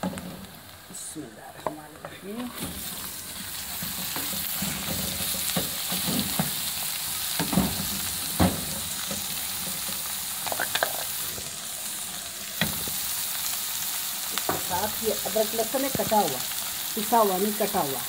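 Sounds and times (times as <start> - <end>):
meat sizzling in a frying pan: 0.0 - 18.0
wooden spoon scraping a pan: 1.9 - 8.0, 8.6 - 11.5.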